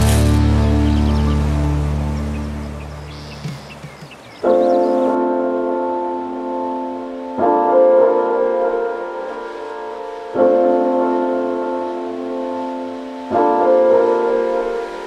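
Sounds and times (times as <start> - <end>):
slow piano chords: 0.0 - 15.0.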